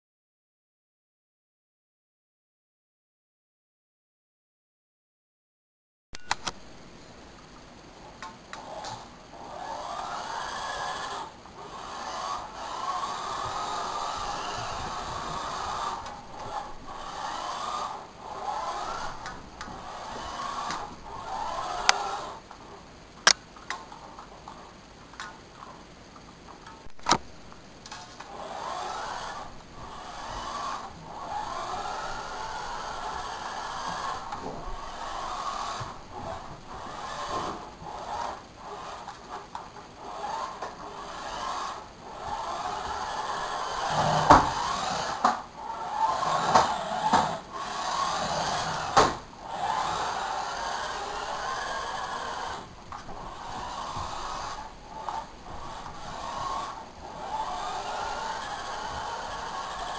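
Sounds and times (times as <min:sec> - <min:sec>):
toy car motor whirring: 0:08.5 - 0:22.4, 0:27.8 - 0:59.9.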